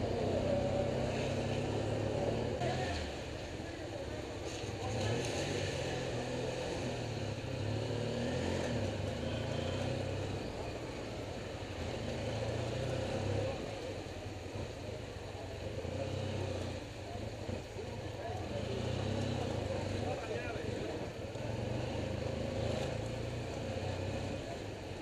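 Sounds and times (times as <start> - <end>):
motorcycle engine at low revs: 0.0 - 25.0
street traffic: 0.0 - 25.0.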